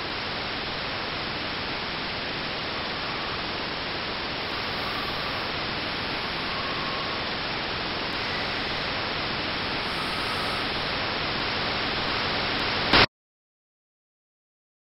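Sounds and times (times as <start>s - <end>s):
static hiss: 0.0s - 13.1s
faint short tones: 4.5s - 7.4s.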